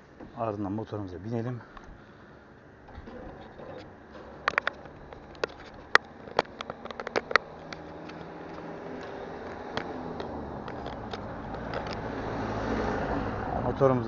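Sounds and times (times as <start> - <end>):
street noise: 0.0 - 14.0
van driving: 1.9 - 14.0
sharp clicks and knocks: 2.9 - 12.1.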